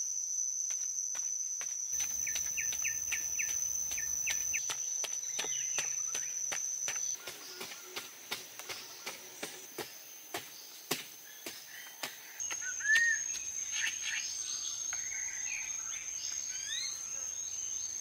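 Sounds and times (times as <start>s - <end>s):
high insect drone: 0.0s - 18.0s
bird chirps: 2.0s - 8.0s, 11.3s - 18.0s
hoe chopping into soil: 6.9s - 13.1s.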